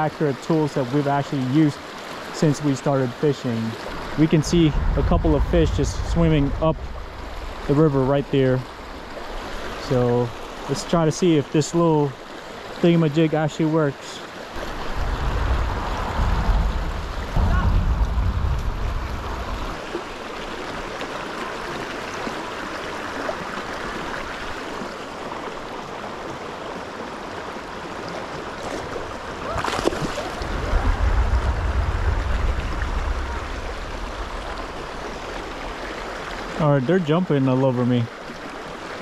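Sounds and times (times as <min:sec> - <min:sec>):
river water over rocks: 0:00.0 - 0:39.0
low rumble: 0:03.9 - 0:09.9, 0:14.6 - 0:20.6, 0:30.2 - 0:36.5.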